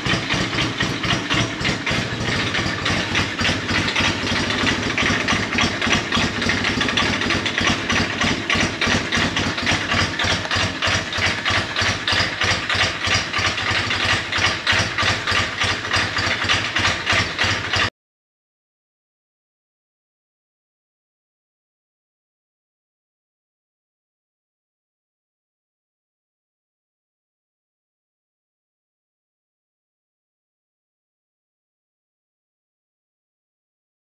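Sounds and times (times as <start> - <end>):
motorcycle engine idling: 0.0 - 17.9.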